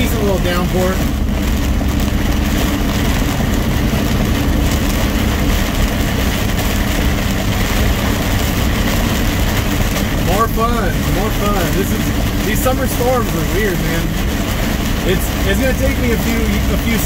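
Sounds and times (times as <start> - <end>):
diesel truck engine running: 0.0 - 17.0
heavy rain and tyre spray: 0.0 - 17.0.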